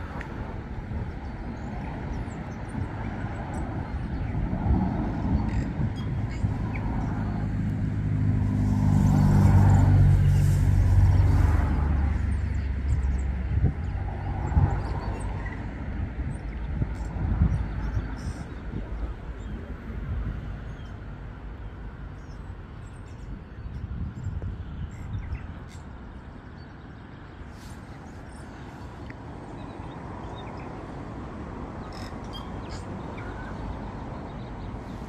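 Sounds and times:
steady outdoor rush: 0.0 - 35.0
wind rumbling on microphone: 0.0 - 35.0.

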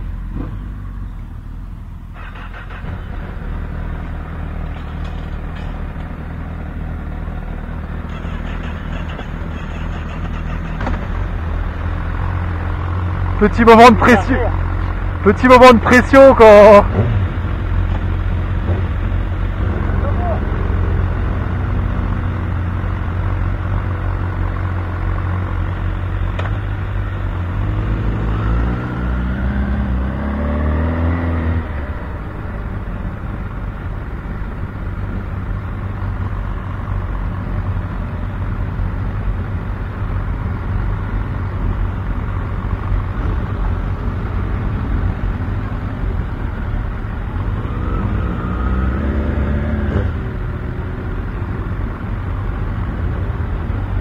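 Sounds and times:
motorcycle engine revving: 26.4 - 34.0, 47.3 - 51.4.

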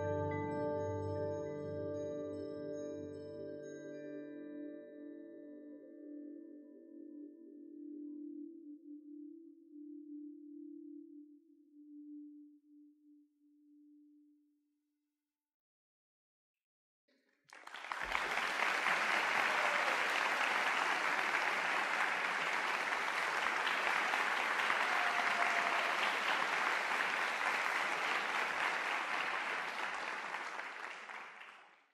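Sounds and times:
audience applause: 17.5 - 31.9.

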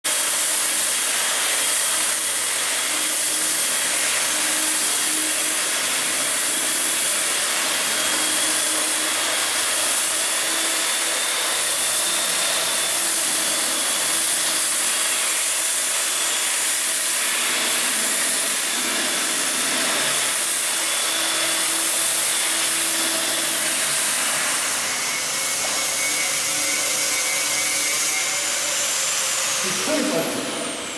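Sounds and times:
belt sander sanding metal: 0.1 - 30.9.

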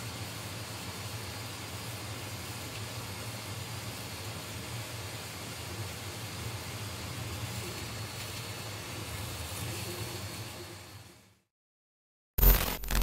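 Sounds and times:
loud short burst: 12.4 - 13.0.

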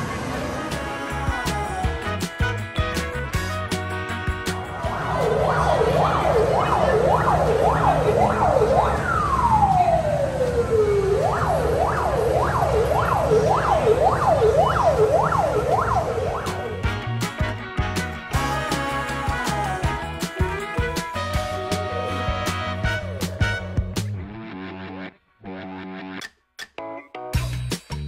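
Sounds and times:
low hum: 4.7 - 16.9
siren yelping and wailing: 4.8 - 16.8, 21.2 - 23.9.

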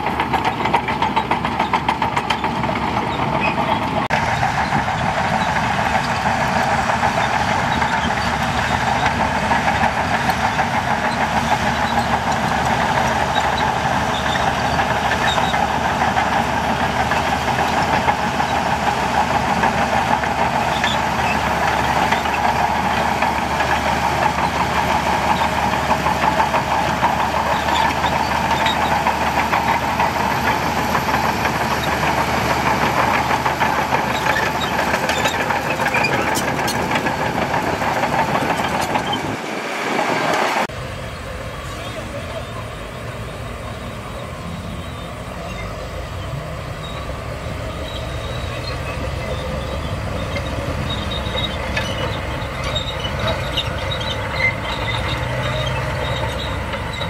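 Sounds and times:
diesel machinery engine drone: 0.0 - 57.0.

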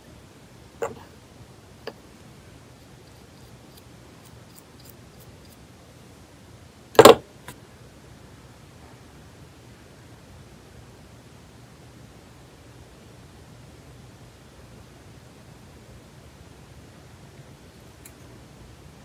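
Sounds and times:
faint steady hiss: 0.0 - 19.0
brush clicking on glass bottle: 3.0 - 5.6
sharp loud knock: 7.0 - 7.2.

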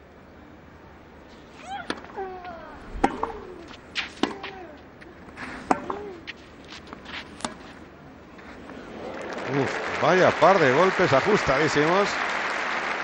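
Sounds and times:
tennis ball hit by rackets: 2.8 - 4.6, 5.6 - 6.1.

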